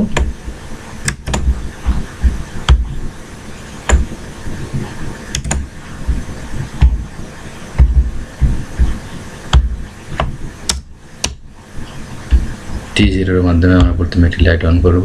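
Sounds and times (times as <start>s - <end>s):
low thumps: 0.0s - 3.2s, 3.8s - 11.5s, 12.2s - 14.5s
computer mouse clicking: 1.0s - 1.6s, 5.3s - 5.7s.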